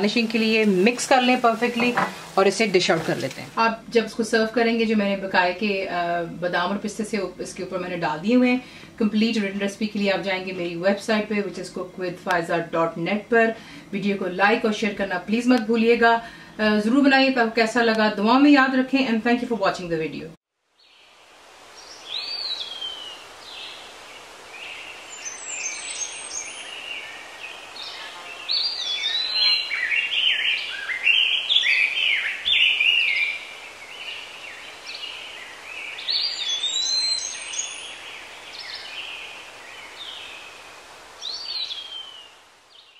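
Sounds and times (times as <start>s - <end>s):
faint steady hiss: 0.0s - 42.9s
birds chirping and singing: 24.6s - 40.5s, 41.2s - 42.9s.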